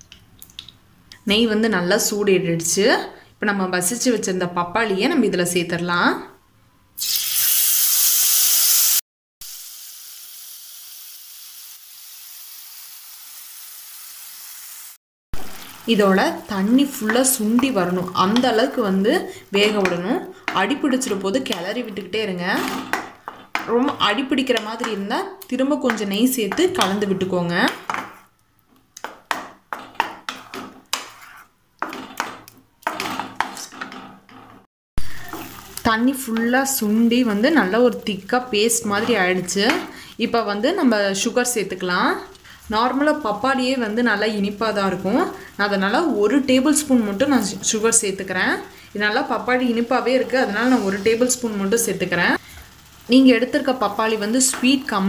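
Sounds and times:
food sizzling in hot oil: 7.0 - 28.3, 35.0 - 55.0
spatula scraping mash in a pan: 16.4 - 25.1, 29.0 - 34.6, 38.6 - 40.0, 50.2 - 51.4.

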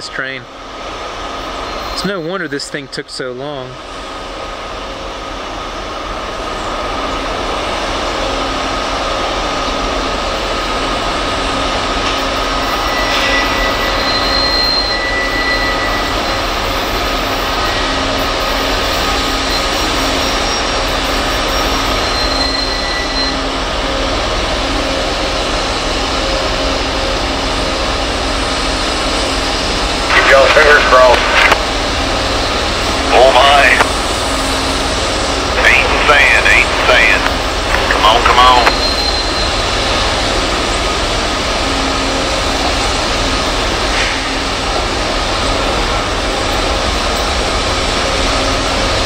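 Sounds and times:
diesel locomotive engines droning: 0.0 - 49.0
thin high whine: 30.0 - 31.6, 32.2 - 34.3, 35.3 - 40.1.

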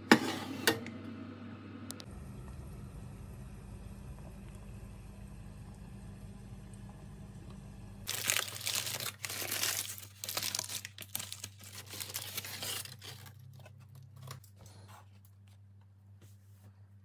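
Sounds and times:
baking parchment crinkling: 8.1 - 15.7.

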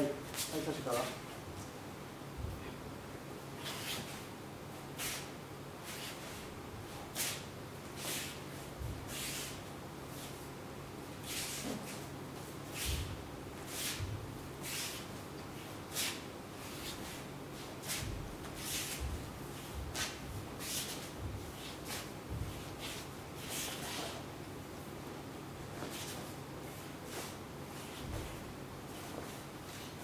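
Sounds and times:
wooden sword swishing: 11.2 - 12.1, 12.7 - 15.2, 15.9 - 24.3, 27.1 - 28.4
bare feet thudding on mats: 12.8 - 14.4, 16.8 - 24.1, 27.1 - 29.8.

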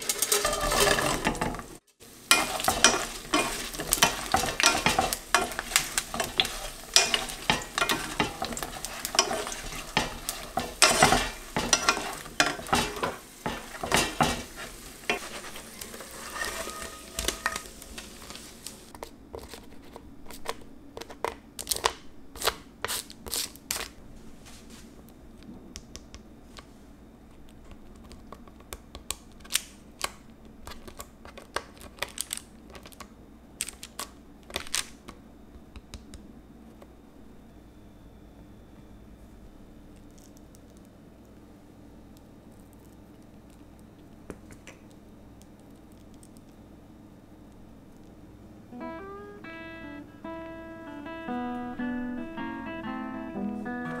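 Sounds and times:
wooden spoon scraping a pan: 0.0 - 18.9
sweet potato sizzling in hot oil: 2.0 - 18.9.

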